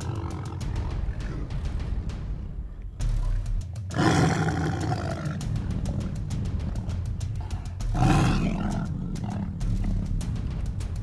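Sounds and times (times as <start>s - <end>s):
tiger roaring: 0.0s - 1.5s, 3.9s - 5.4s, 7.9s - 10.0s
background music: 0.0s - 11.0s.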